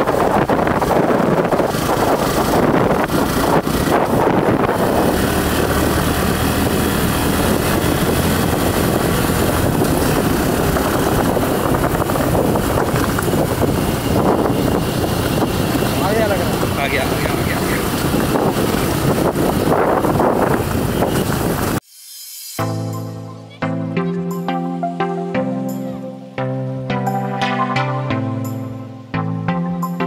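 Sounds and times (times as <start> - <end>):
motorbike engine hum: 0.0 - 21.8
wind rushing over microphone: 0.0 - 21.8.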